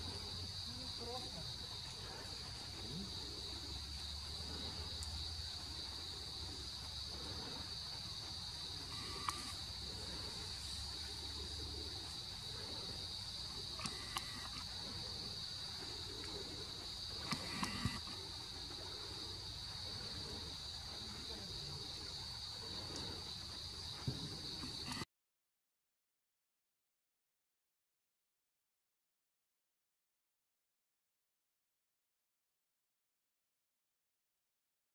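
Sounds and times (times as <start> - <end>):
insects droning: 0.0 - 25.1
sharp clicks: 8.9 - 9.6, 13.8 - 14.7, 17.2 - 18.2.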